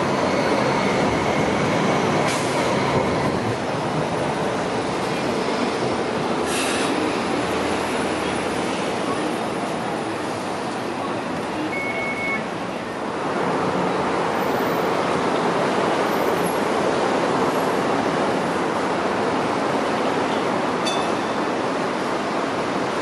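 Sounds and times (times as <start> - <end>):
rushing traffic noise: 0.0 - 23.0
high beep: 11.7 - 12.4.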